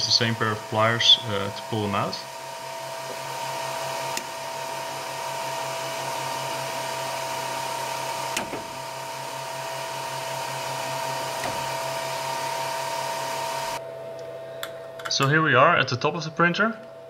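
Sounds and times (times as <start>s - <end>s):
cooling fans whining: 0.0s - 17.0s.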